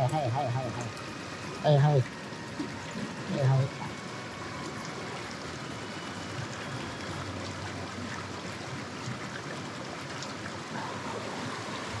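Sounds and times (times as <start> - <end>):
stream running over rocks: 0.0 - 12.0.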